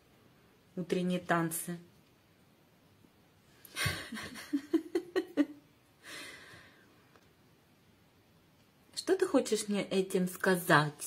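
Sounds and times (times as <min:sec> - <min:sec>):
person laughing breathily: 0:03.7 - 0:06.6.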